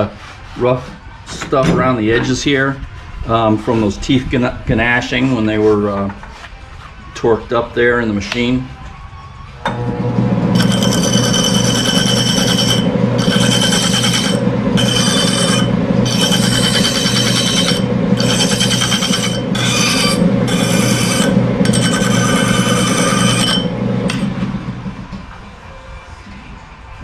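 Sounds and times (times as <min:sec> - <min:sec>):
lathe humming: 0:09.7 - 0:25.2
high metallic ringing: 0:10.5 - 0:24.4
file scraping metal gear teeth: 0:10.6 - 0:24.3.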